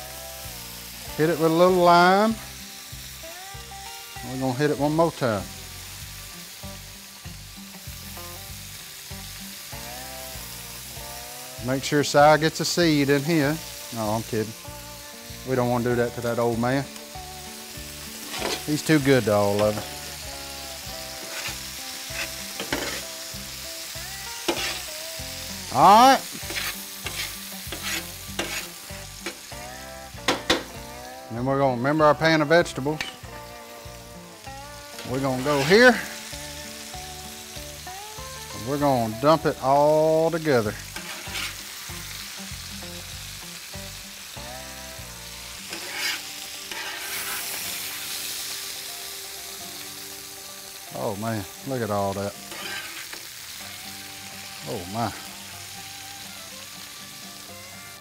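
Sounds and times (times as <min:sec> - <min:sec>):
meat sizzling on a griddle: 0:00.0 - 0:58.0
spatula scraping: 0:18.1 - 0:20.0, 0:21.2 - 0:23.1, 0:24.4 - 0:24.9, 0:25.8 - 0:29.4, 0:35.1 - 0:36.1, 0:40.9 - 0:41.6, 0:45.6 - 0:48.1, 0:52.5 - 0:53.3.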